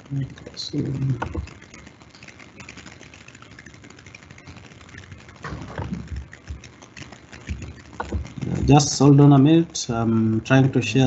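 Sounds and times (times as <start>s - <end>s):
soft thuds: 5.4s - 6.6s.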